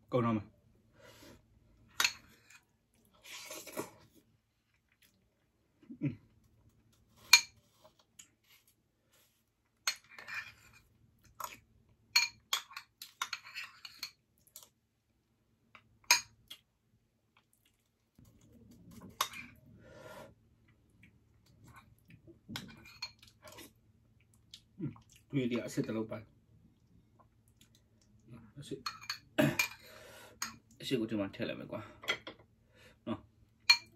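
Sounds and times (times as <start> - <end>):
soft eating sounds: 1.1 - 30.8.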